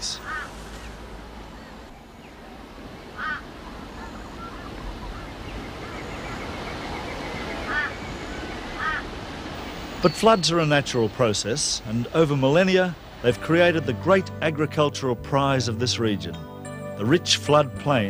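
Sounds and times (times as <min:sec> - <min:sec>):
flowing creek water: 0:00.0 - 0:14.4.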